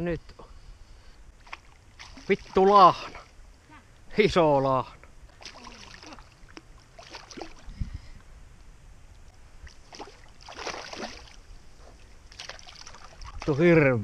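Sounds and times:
fish splashing in water: 1.4s - 2.7s, 5.3s - 7.7s, 9.6s - 11.5s, 12.3s - 13.5s.

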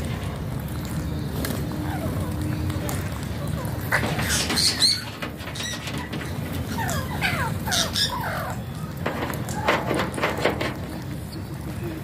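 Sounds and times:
parakeets squawking: 3.8s - 8.9s.

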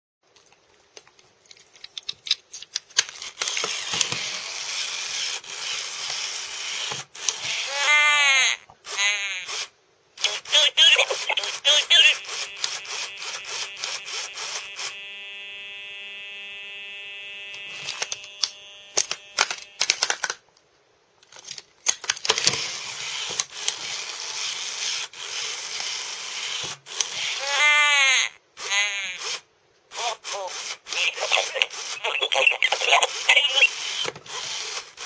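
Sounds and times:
rapid mechanical clicking: 3.0s - 7.7s
motor and gears grinding: 3.2s - 8.1s, 8.9s - 20.0s, 22.3s - 27.7s, 28.6s - 32.0s, 32.7s - 35.0s
glitchy warbling toy voice: 7.5s - 14.6s, 27.1s - 34.1s
steady electronic buzzing tone: 11.5s - 19.9s.

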